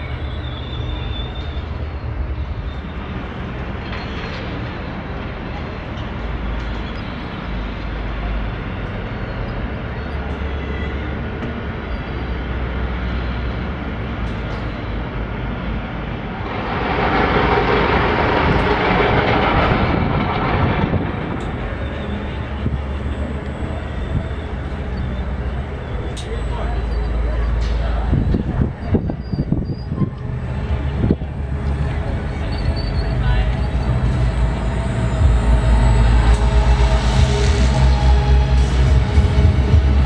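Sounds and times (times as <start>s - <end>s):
city background rumble: 0.0s - 40.0s
even rushing noise: 15.9s - 25.9s, 30.3s - 40.0s.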